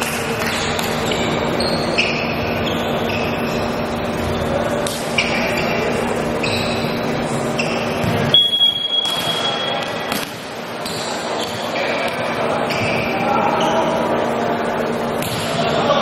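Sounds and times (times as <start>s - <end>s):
sneakers squeaking on hardwood: 0.0s - 15.6s
referee's whistle blast: 7.6s - 9.9s
volleyball being hit: 8.0s - 13.1s, 15.1s - 15.6s.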